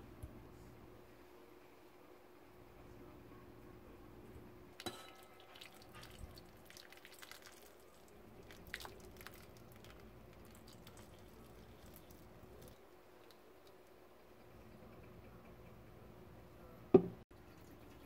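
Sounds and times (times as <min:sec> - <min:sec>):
metallic clink from bowl: 0:04.8 - 0:05.5
water pouring into a steel bowl: 0:04.8 - 0:13.4.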